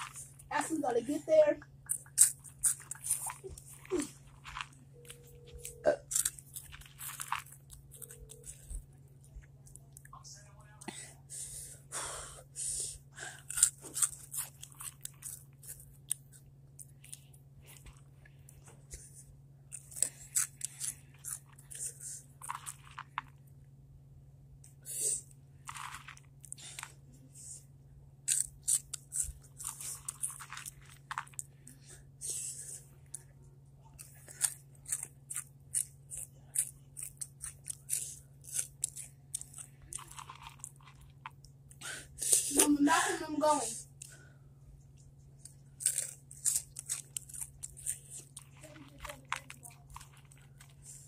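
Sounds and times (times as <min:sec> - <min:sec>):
chips crunching while chewed: 0:00.0 - 0:00.7, 0:01.7 - 0:10.1, 0:13.3 - 0:23.6, 0:25.6 - 0:27.0, 0:28.2 - 0:31.8, 0:33.9 - 0:42.8, 0:45.3 - 0:51.0
steady low hum: 0:00.0 - 0:51.0.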